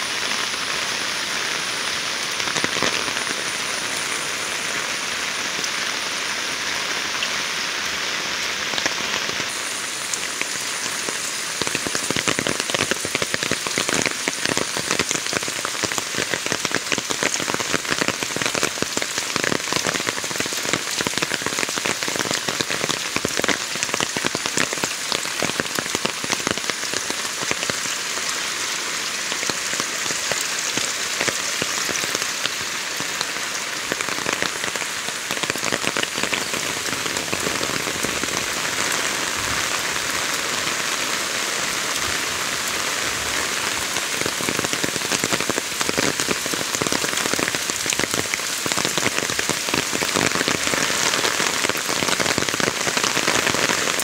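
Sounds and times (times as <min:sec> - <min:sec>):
heavy rain falling: 0:00.0 - 0:54.0
raindrops hitting: 0:00.0 - 0:54.0.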